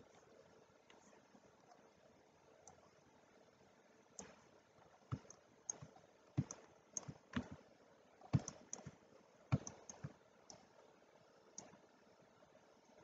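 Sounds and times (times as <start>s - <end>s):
computer mouse clicks: 2.6s - 2.8s, 4.2s - 4.5s, 5.1s - 7.6s, 8.2s - 10.7s, 11.5s - 11.9s
keyboard clicks: 4.2s - 4.4s, 5.1s - 7.6s, 8.3s - 10.7s.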